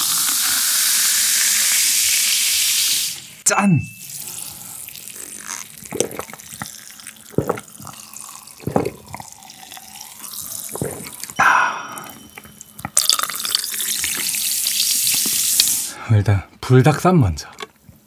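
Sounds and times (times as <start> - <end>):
soda pouring and fizzing: 0.0 - 3.4, 4.0 - 16.0
person gulping a drink: 4.0 - 15.4
carbonation crackle: 4.0 - 16.0.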